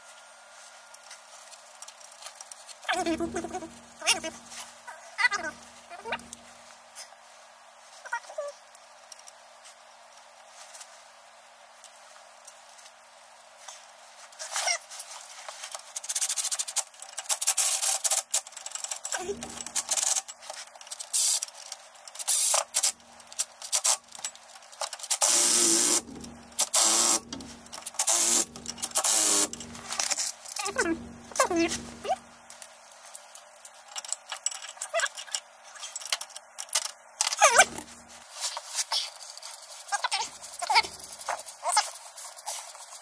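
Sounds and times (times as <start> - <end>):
handling noises: 13.5 - 43.0
power driver driving bolts: 25.2 - 30.0.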